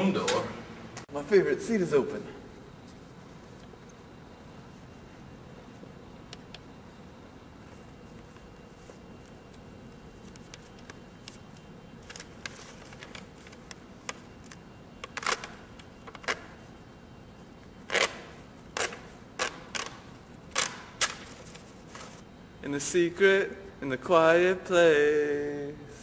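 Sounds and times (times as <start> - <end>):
paper crackling and rustling: 8.2 - 14.6, 20.6 - 22.2.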